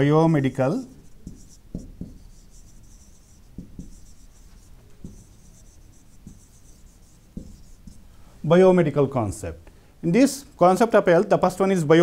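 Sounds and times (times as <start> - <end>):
marker squeaking on whiteboard: 0.6 - 8.1
pen knocking against board: 1.2 - 2.4, 3.6 - 4.0, 5.0 - 5.3, 7.3 - 8.0.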